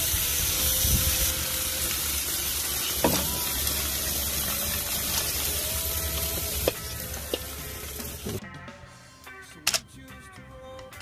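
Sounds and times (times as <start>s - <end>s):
chicken sizzling on a grill: 0.0s - 8.4s.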